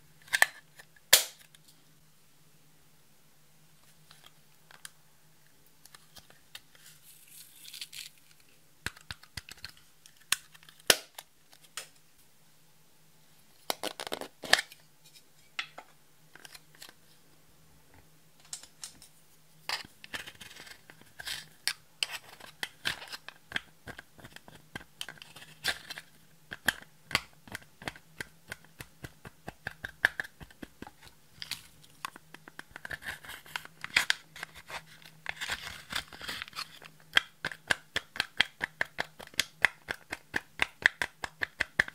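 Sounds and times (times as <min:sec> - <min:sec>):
plastic compacts clicking: 0:35.3 - 0:41.9.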